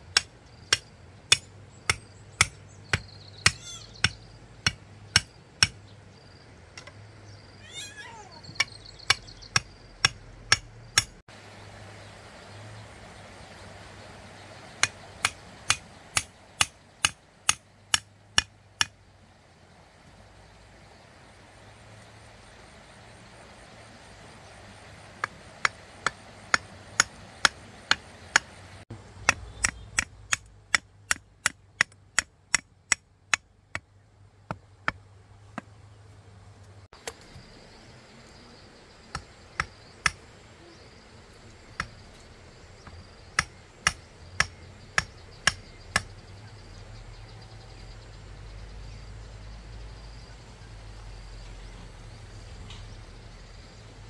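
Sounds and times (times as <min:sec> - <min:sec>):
hand tool striking wood: 0:00.1 - 0:05.8, 0:08.6 - 0:11.2, 0:14.8 - 0:19.0, 0:25.2 - 0:28.5, 0:29.2 - 0:33.9, 0:42.8 - 0:46.1.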